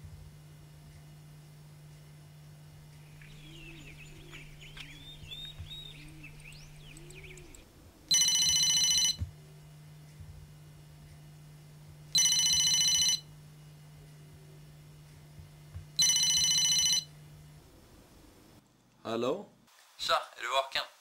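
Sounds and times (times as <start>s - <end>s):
steady low hum: 0.0s - 19.7s
faint bird chirping: 2.9s - 7.7s
electronic telephone ring: 8.1s - 9.2s, 12.2s - 13.3s, 16.0s - 17.1s.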